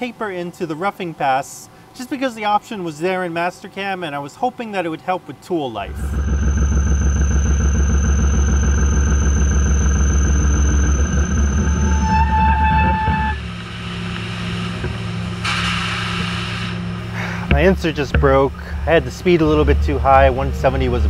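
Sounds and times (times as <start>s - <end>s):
lathe machining hum with whine: 5.9s - 17.6s.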